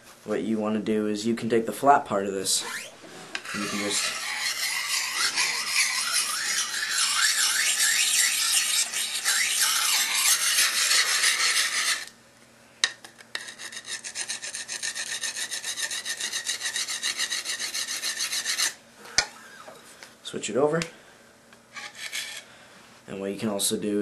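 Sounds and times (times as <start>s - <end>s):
sharpening stone grinding on blade: 2.6s - 12.1s, 13.4s - 18.8s, 21.8s - 22.4s
short scraping strokes: 2.6s - 12.1s, 21.7s - 22.5s.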